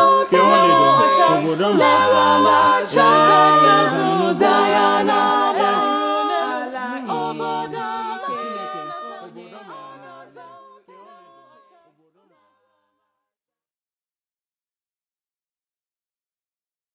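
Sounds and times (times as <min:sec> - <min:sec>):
a cappella vocal quartet singing: 0:00.0 - 0:12.6.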